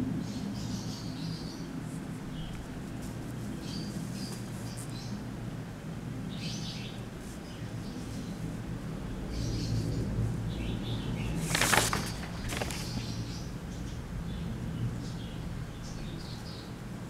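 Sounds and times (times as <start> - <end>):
steady low hum: 0.0 - 11.5
small birds chirping: 0.1 - 17.0.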